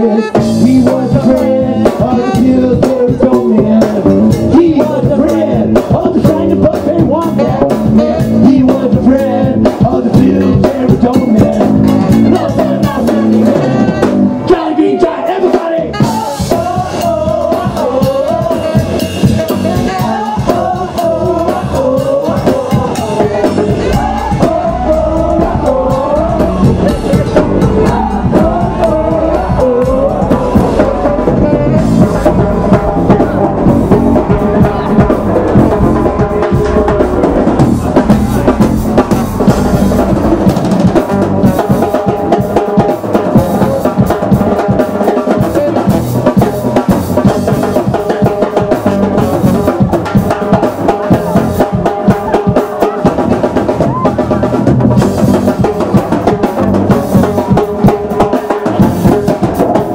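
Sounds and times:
drums: 0:00.0 - 0:59.9
mallet percussion playing: 0:22.7 - 0:43.9
wavering melody line: 0:23.0 - 0:42.6.

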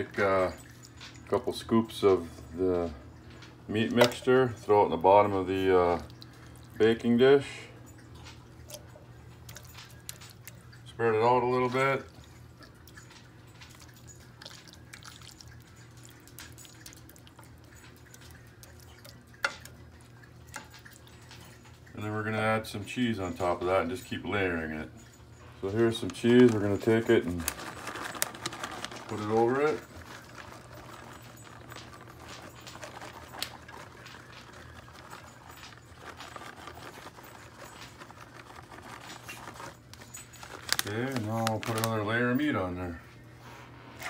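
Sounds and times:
low steady hum: 0:00.0 - 0:44.0
plastic bag rustling: 0:25.4 - 0:44.0
shredded cheese pattering: 0:25.6 - 0:42.8.

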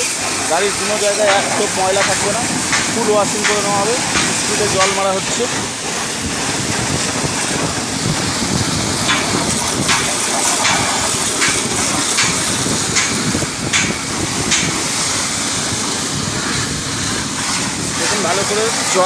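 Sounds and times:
pressure water jet hissing: 0:00.0 - 0:19.0
short sharp cracks: 0:01.3 - 0:05.2.

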